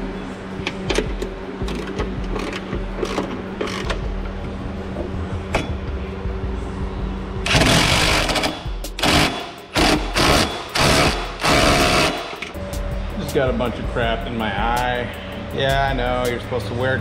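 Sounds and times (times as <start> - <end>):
steady low hum: 0.0 - 17.0
impact driver rattling: 7.5 - 12.4.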